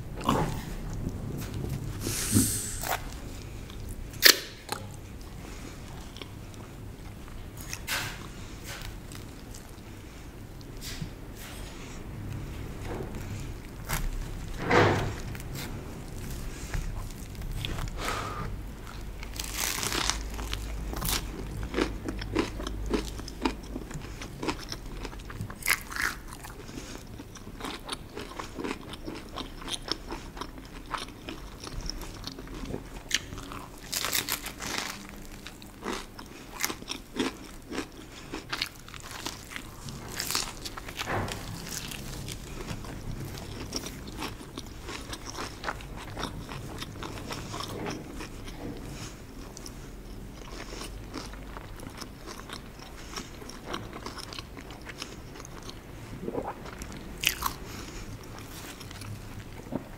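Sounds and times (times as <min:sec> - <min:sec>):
chewing crusty bread: 0:13.1 - 0:59.9.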